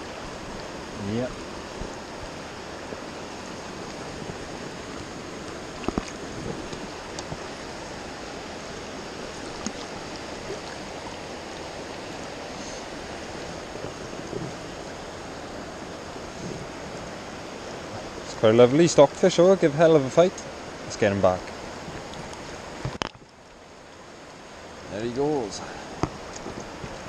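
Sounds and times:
water rushing over stones: 0.0s - 27.0s
knocks and splashes: 5.5s - 7.6s, 9.3s - 11.2s.

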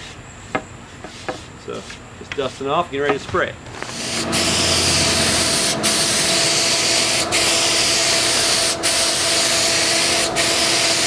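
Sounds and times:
spray gun hissing: 3.9s - 11.0s.

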